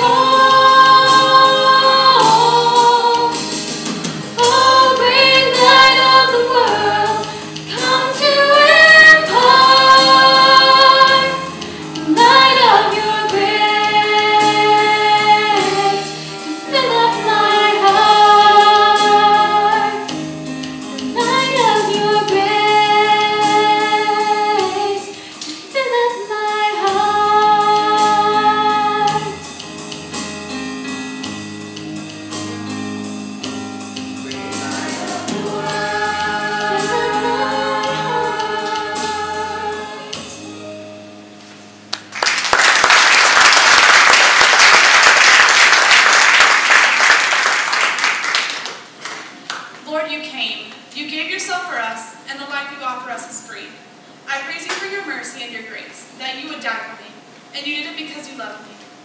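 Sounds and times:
choir singing: 0:00.0 - 0:03.4, 0:04.4 - 0:11.5, 0:12.1 - 0:20.1, 0:34.3 - 0:40.5
audience applause: 0:42.0 - 0:49.7.

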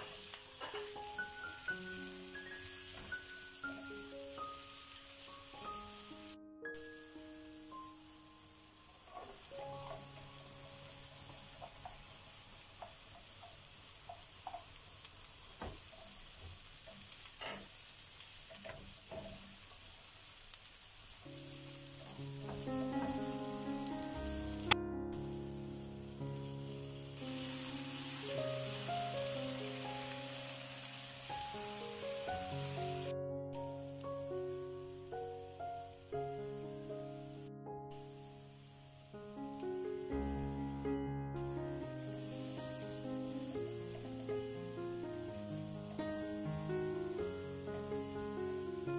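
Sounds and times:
vegetables sizzling in frying pan: 0:00.0 - 0:40.8, 0:41.4 - 0:48.9
spatula scraping and tapping pan: 0:12.8 - 0:14.8, 0:15.6 - 0:17.8, 0:18.5 - 0:19.8
background music: 0:21.4 - 0:37.5, 0:39.2 - 0:48.9.

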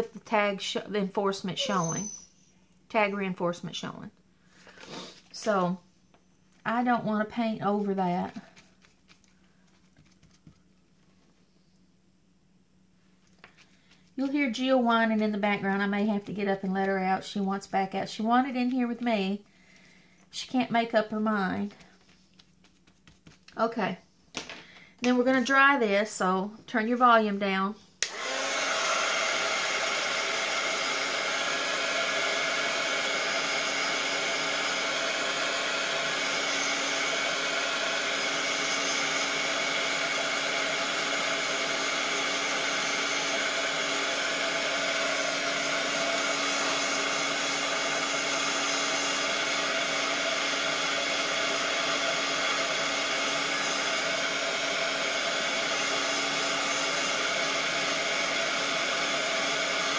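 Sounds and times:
heat gun fan humming: 0:28.0 - 0:59.9.

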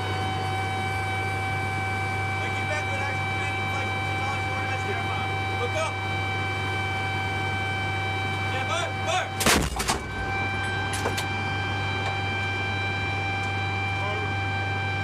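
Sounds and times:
vehicle hum and high whine: 0:00.0 - 0:15.0
howitzer firing boom: 0:09.4 - 0:10.4.

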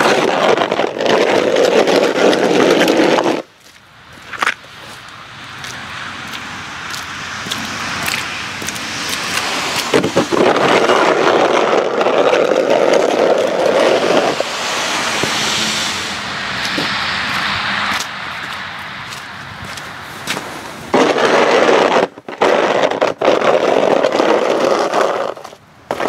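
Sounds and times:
plastic shovel scraping wet asphalt: 0:00.0 - 0:05.8, 0:06.4 - 0:26.0.

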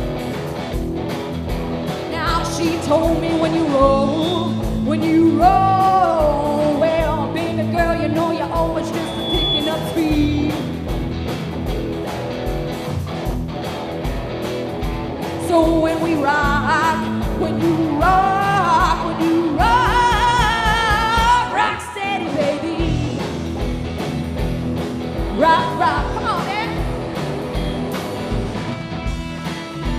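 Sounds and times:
live rock band playing: 0:00.0 - 0:29.9
woman singing lead vocal: 0:02.1 - 0:10.7, 0:15.4 - 0:23.2, 0:25.3 - 0:26.8.

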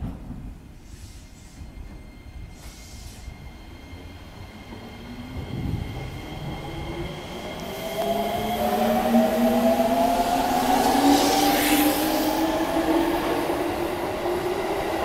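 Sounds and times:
electric train motor tones rising: 0:06.6 - 0:13.2.

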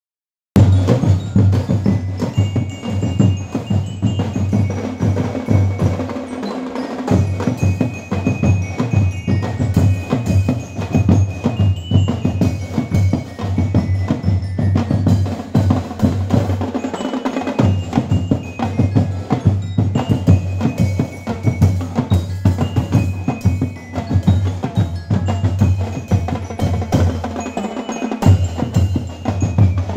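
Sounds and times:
bass and snare drums: 0:00.6 - 0:29.9
bell-lyre melody: 0:00.6 - 0:29.9.

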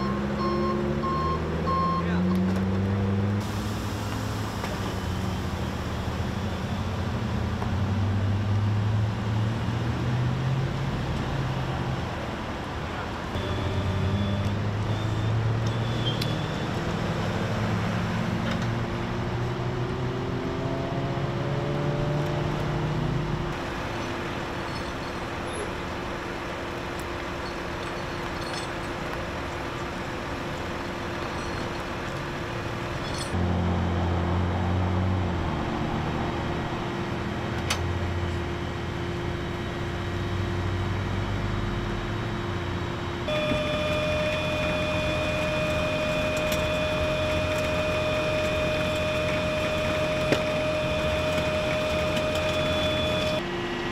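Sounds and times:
road traffic humming: 0:00.0 - 0:53.9
low engine drone: 0:16.9 - 0:53.9
gliding engine tones: 0:29.7 - 0:53.9.

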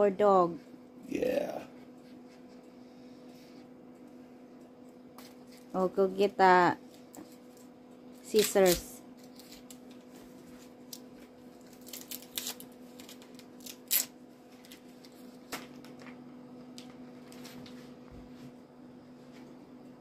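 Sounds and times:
steady low hum: 0:00.0 - 0:20.0
packaging crinkling and rustling: 0:07.2 - 0:16.2.

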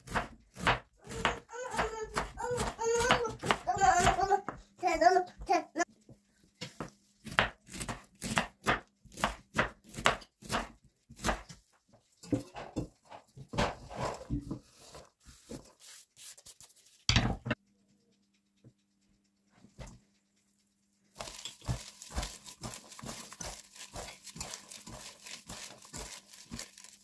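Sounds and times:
knife slicing cabbage on board: 0:00.0 - 0:04.6, 0:06.6 - 0:11.6, 0:21.2 - 0:27.0
shredded cabbage rustling: 0:13.8 - 0:17.1, 0:21.1 - 0:27.0.

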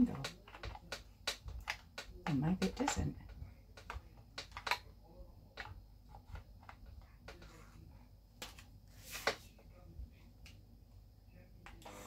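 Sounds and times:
plastic parts clicking and scraping: 0:00.0 - 0:04.9, 0:05.5 - 0:07.6.

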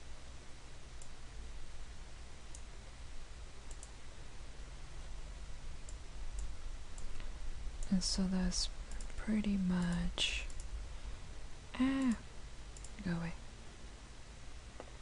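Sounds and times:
low hum and hiss: 0:00.0 - 0:15.0
computer mouse clicking: 0:03.6 - 0:04.0, 0:05.8 - 0:07.9, 0:08.9 - 0:09.2, 0:09.8 - 0:10.7, 0:12.8 - 0:13.1.

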